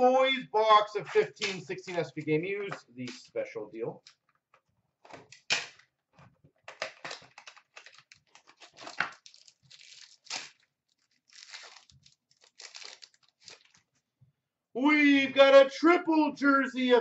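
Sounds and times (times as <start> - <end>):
card wrappers tearing and crinkling: 6.7 - 13.8.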